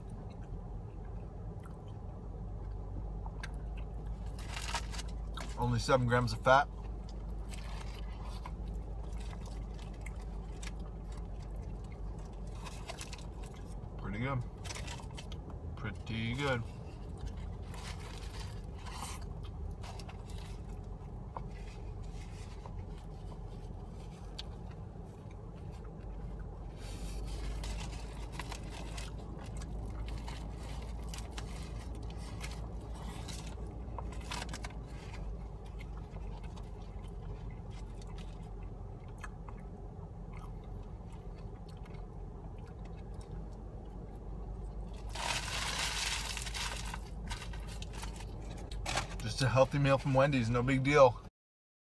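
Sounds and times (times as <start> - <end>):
low hum in car: 0.0 - 51.3
person chewing: 1.5 - 2.1, 3.2 - 5.5, 6.8 - 13.9, 16.9 - 48.8
foil wrapper crinkling: 26.9 - 35.7, 45.0 - 49.3.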